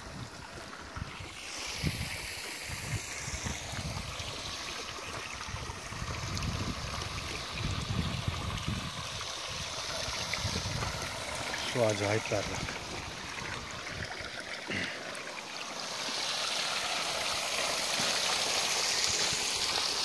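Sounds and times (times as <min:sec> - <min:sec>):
water running through metal trough: 0:00.0 - 0:20.0
water spilling onto stones: 0:00.1 - 0:20.0
wind buffeting microphone: 0:05.4 - 0:11.5.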